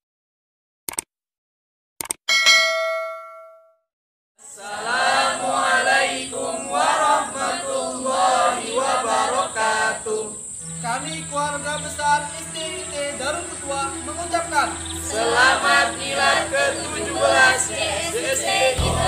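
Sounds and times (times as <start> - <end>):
group chanting in unison: 4.4 - 10.8, 14.7 - 19.0
steady high-pitched whine: 4.4 - 19.0.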